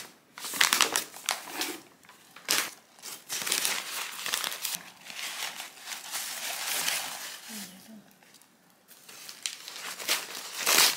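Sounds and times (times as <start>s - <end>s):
packaging rustling and crinkling: 0.0s - 10.9s.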